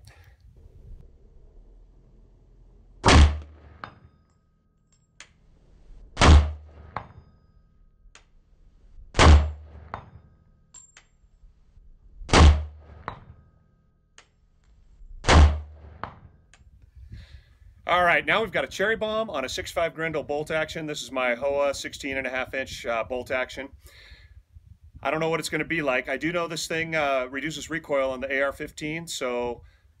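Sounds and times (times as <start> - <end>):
rifle shots: 3.0 - 3.9, 6.2 - 7.0, 9.2 - 10.0, 12.3 - 13.0, 15.2 - 16.1
bullet hitting steel target: 3.0 - 5.1, 6.2 - 7.7, 9.1 - 11.2, 12.3 - 13.5, 15.2 - 16.4.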